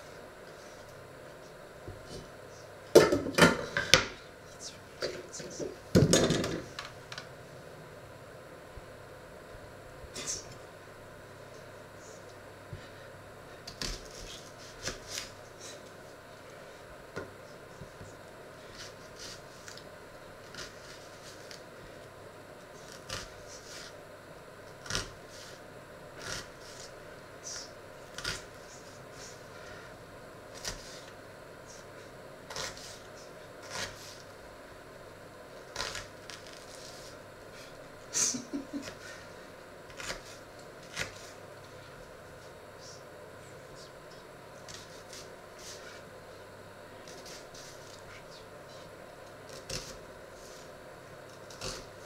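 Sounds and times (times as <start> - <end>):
knife cutting onion on board: 32.5 - 34.3.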